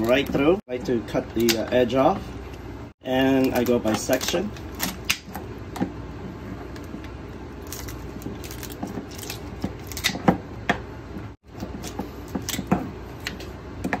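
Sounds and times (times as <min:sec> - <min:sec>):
shears crunching through crab shell: 0:03.3 - 0:05.4, 0:07.6 - 0:10.2, 0:11.6 - 0:13.5.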